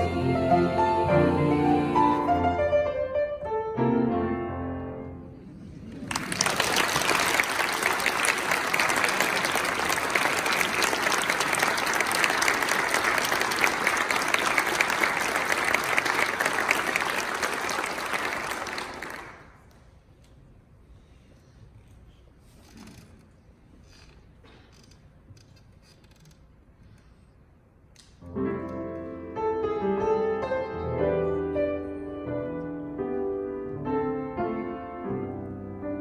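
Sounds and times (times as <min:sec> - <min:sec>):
piano chords: 0:00.0 - 0:05.4, 0:28.2 - 0:36.0
audience applause: 0:05.8 - 0:19.6.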